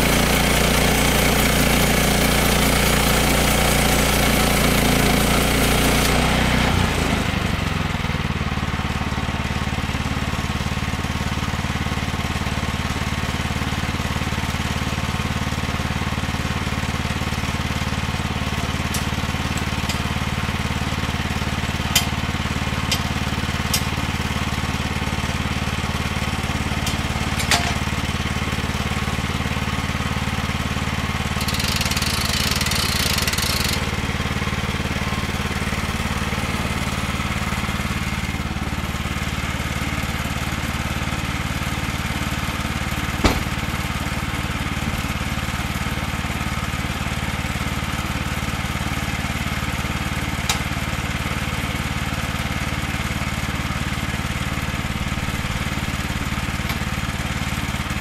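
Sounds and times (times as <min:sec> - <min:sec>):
small gas engine running: 0:00.0 - 0:58.0
sharp knocks: 0:43.2 - 0:43.9.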